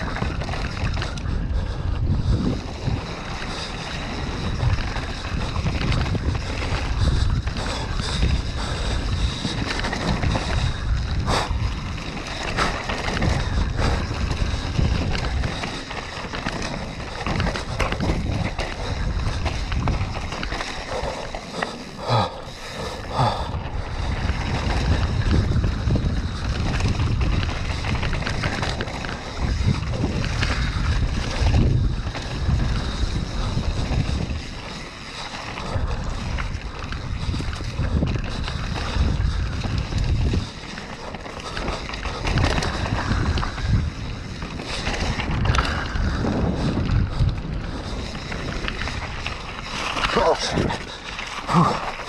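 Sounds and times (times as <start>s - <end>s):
bike tyres rolling on dirt: 0.0s - 52.0s
wind buffeting microphone: 0.0s - 52.0s
bike knocks and rattles: 2.0s - 22.2s.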